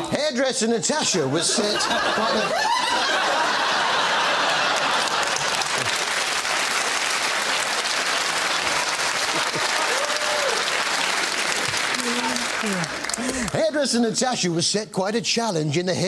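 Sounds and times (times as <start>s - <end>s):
audience applauding: 2.6s - 13.6s.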